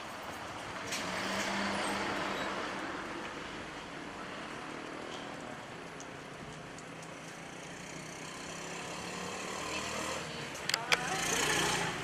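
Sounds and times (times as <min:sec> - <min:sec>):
distant road traffic: 0:00.0 - 0:12.0.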